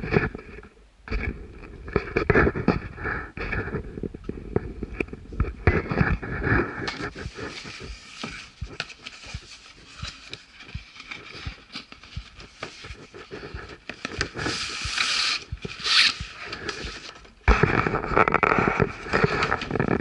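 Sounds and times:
cardboard box rubbing and scraping: 5.7 - 20.0.

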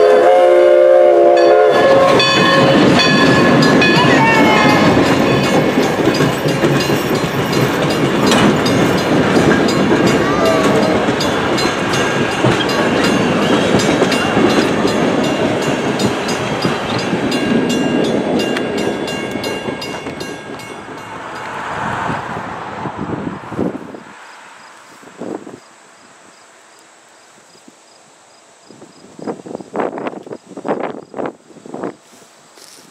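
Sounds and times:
train wheels clicking over rail joints: 1.7 - 21.6.

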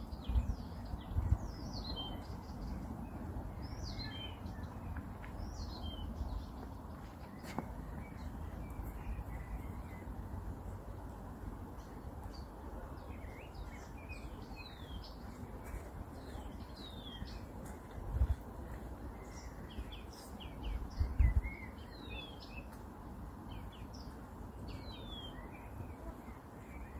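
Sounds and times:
faint background rush: 0.0 - 26.9
warbler singing: 0.0 - 26.9.

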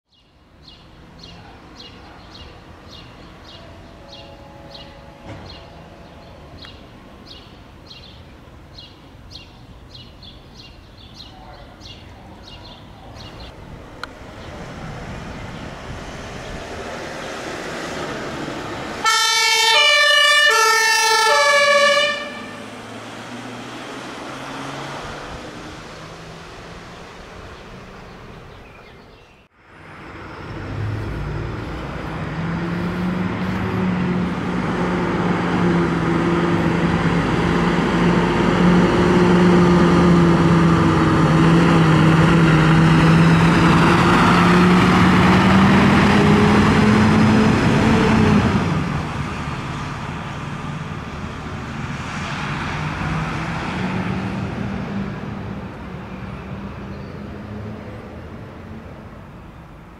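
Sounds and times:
vehicle driving off: 13.3 - 29.0, 29.6 - 59.2
two-tone ambulance siren: 19.0 - 22.9.

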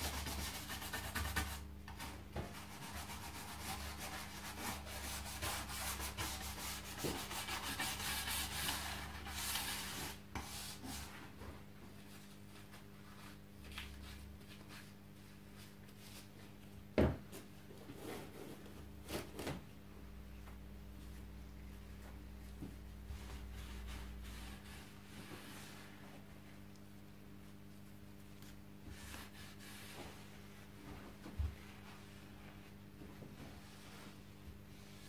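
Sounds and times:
brush scrubbing wood: 28.9 - 31.0.

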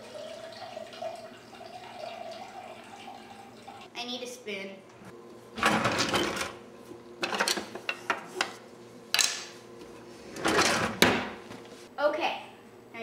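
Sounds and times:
utensils clattering and clinking: 5.6 - 6.6, 7.2 - 8.6, 10.3 - 11.1
drawer sliding: 10.2 - 11.3.

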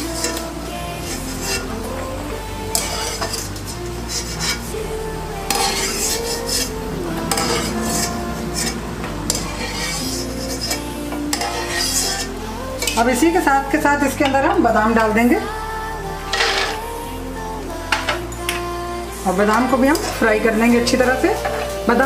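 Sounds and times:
hot oil sizzling: 0.1 - 13.0
wire skimmer scraping steel pot: 5.5 - 13.2, 16.3 - 16.8.

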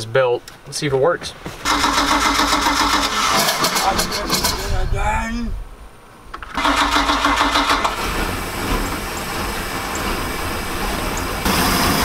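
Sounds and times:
boat engine starting and running: 1.6 - 4.8, 6.5 - 12.0.

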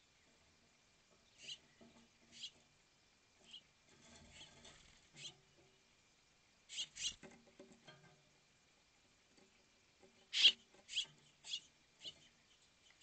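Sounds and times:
birds making scratchy sounds: 1.4 - 2.6, 3.4 - 5.4, 6.7 - 7.3, 10.3 - 13.0.

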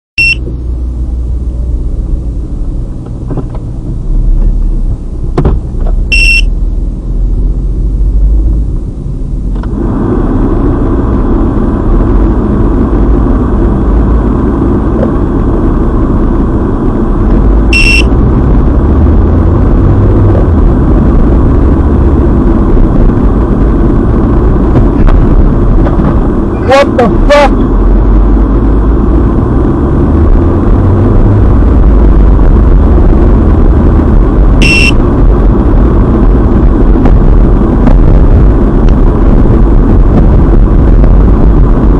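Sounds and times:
car engine and road rumble: 0.2 - 41.9
short high electronic beeps: 6.1 - 6.5, 17.7 - 18.1, 34.6 - 35.0.

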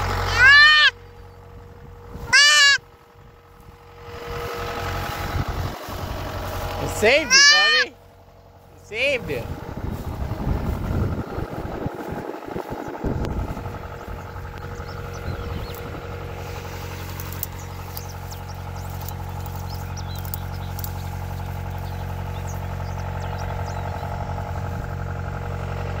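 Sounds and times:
tractor engine idling: 0.0 - 26.0.

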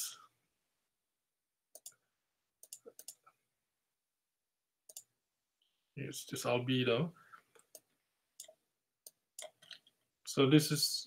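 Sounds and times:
soft computer mouse clicks: 1.7 - 2.0, 2.6 - 3.2, 4.9 - 5.1, 7.6 - 9.8.

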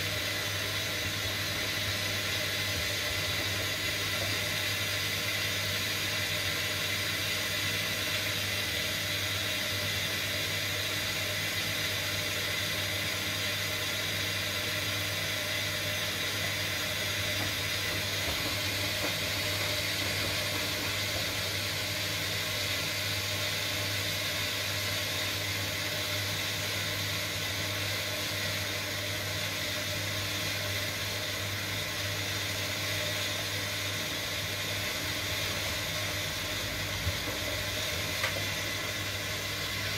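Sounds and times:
washing machine drum turning: 16.5 - 22.6.

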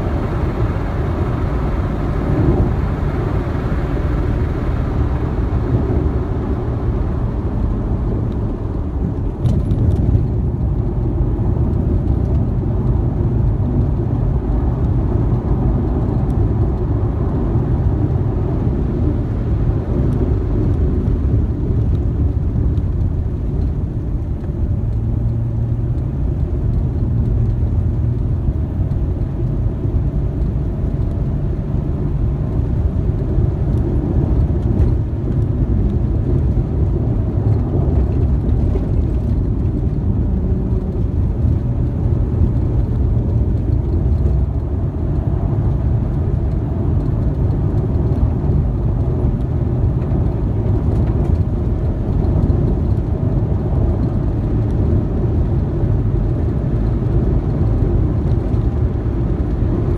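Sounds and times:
car engine rumble: 0.0 - 59.9.

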